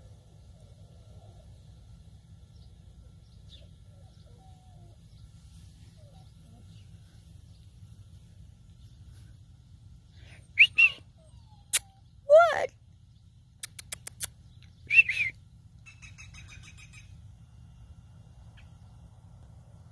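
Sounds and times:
faint low background noise: 0:00.0 - 0:13.6, 0:14.4 - 0:19.9
puppy yips: 0:10.6 - 0:12.0.

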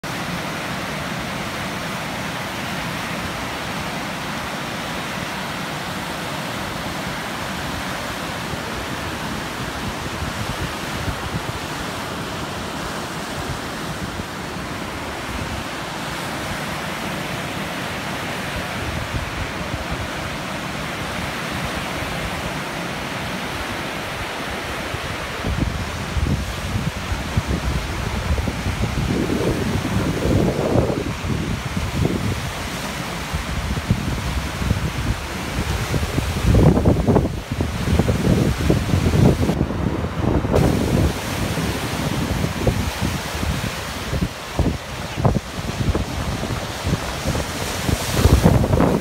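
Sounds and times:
waves breaking on shore: 0:00.0 - 0:49.0
wind buffeting microphone: 0:08.5 - 0:15.7, 0:24.8 - 0:49.0.

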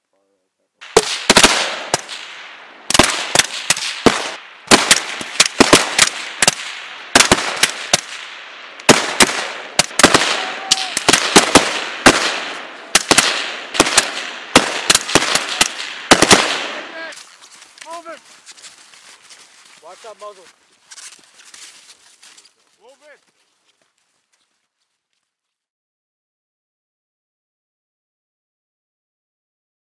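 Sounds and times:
suppressed rifle shots: 0:00.8 - 0:16.9.

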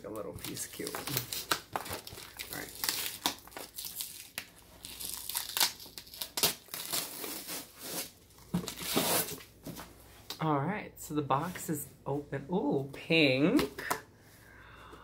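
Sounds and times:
tape and cardboard crinkling: 0:00.0 - 0:09.9
packing tape ripping off cardboard: 0:00.4 - 0:09.5.

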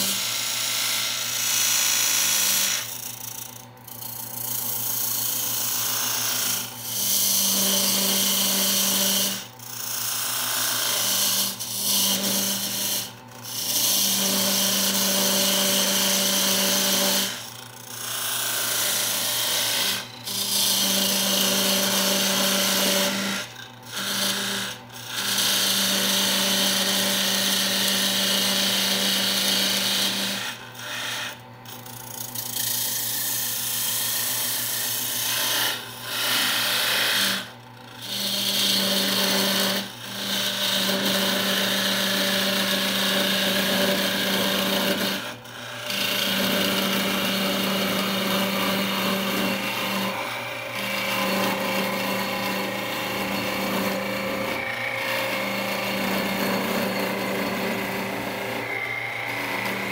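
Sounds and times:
turning tool scraping wood: 0:00.0 - 0:59.9
lathe motor hum: 0:38.0 - 0:59.9.

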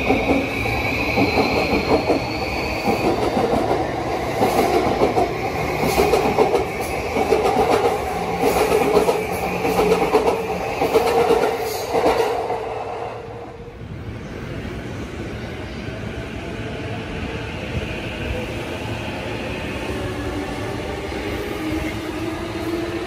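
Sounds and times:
train wheels clattering over rails: 0:00.0 - 0:12.7.

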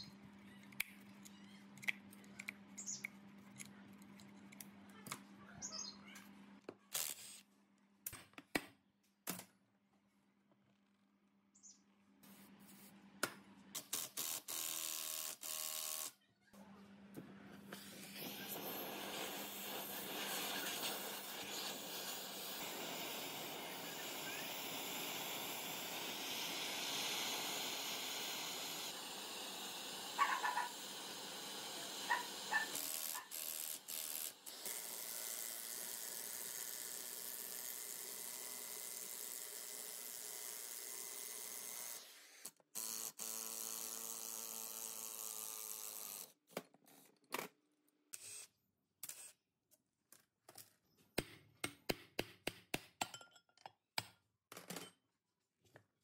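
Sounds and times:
gas torch hissing: 0:17.7 - 0:35.0
impact wrench whining: 0:18.1 - 0:35.2.

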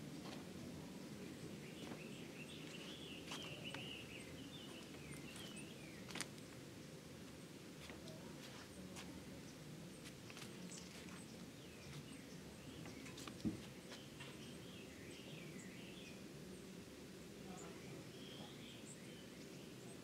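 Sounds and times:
bird calls: 0:01.6 - 0:06.2.

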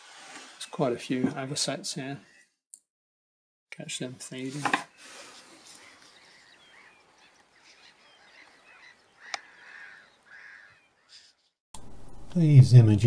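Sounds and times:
distant waterbird calls: 0:04.9 - 0:12.3.

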